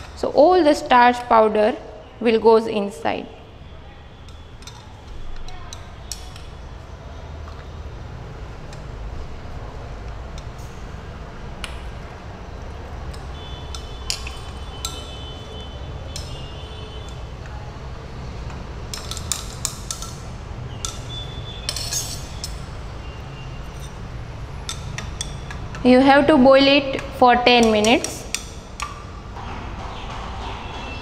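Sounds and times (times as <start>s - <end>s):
glass rod clinking in beaker: 20.8s - 22.6s.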